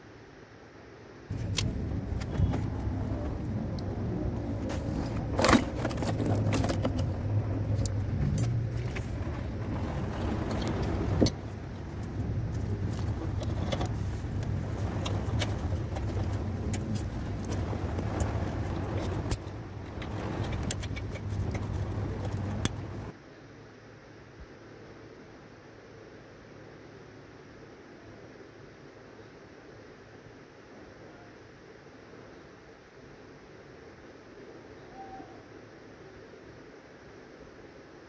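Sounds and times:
low machine hum: 0.0s - 37.8s
wiring connectors clicking and rattling: 1.3s - 23.1s.

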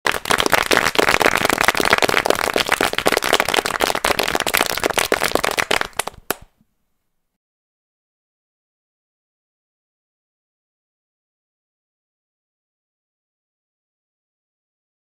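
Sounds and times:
rapid crackling pops: 0.1s - 6.5s.

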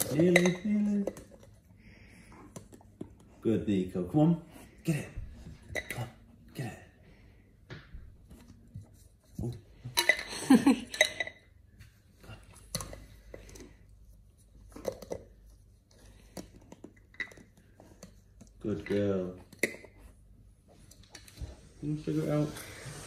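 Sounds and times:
dog playing with plastic cup: 0.0s - 3.4s, 5.4s - 6.2s.

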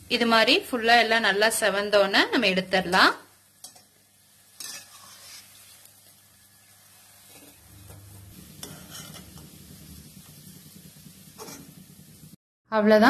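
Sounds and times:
hot oil sizzling: 0.0s - 12.4s
steel ladle scraping and clinking: 4.6s - 5.6s, 8.6s - 9.4s, 11.4s - 11.8s.

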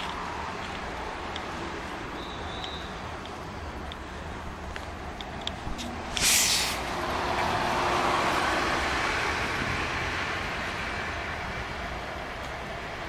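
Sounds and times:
bus passing: 0.0s - 13.0s
bus air hiss: 6.1s - 7.0s.

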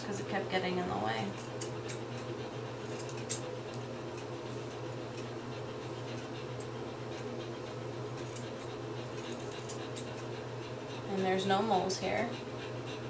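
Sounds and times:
steady low hum: 0.0s - 13.0s
scissors snipping fur: 2.8s - 4.3s.

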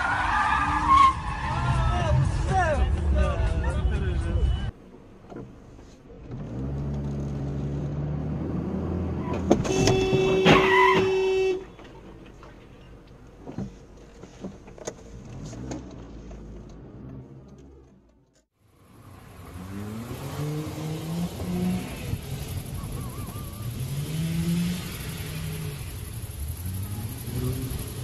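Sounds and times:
road noise: 0.0s - 28.0s
car horn blast: 9.5s - 11.8s.

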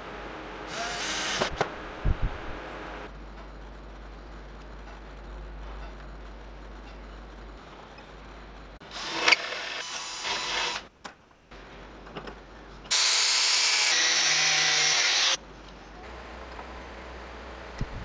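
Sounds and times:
tool whirring: 8.8s - 10.9s, 12.9s - 15.4s.

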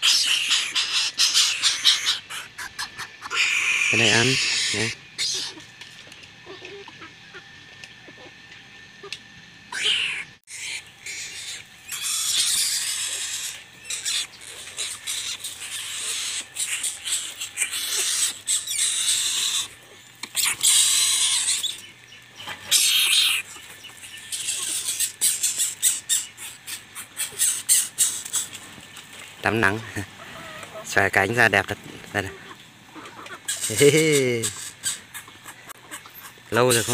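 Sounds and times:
birds giving hissing rasps: 0.0s - 7.4s, 9.7s - 36.9s
clicks and rustles in dry leaves: 28.0s - 32.4s.

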